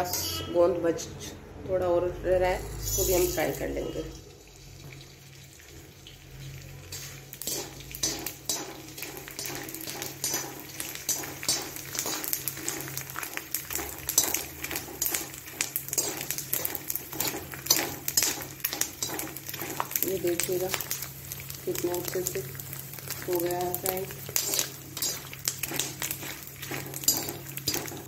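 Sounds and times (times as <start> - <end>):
metal ladle clinking on steel pan: 0.0 - 0.7, 6.9 - 12.3, 27.0 - 28.0
faint frying sizzle: 2.6 - 28.0.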